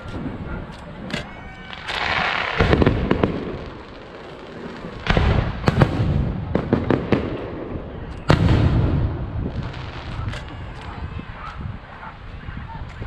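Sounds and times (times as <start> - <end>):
firework bangs and crackles: 0.0 - 13.0
firework booms: 1.6 - 11.9.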